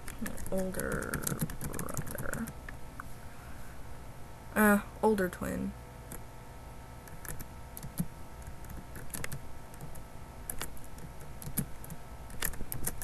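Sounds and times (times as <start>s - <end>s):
typing on computer keyboard: 0.0s - 2.6s, 7.1s - 13.0s
faint steady hum: 0.0s - 13.0s.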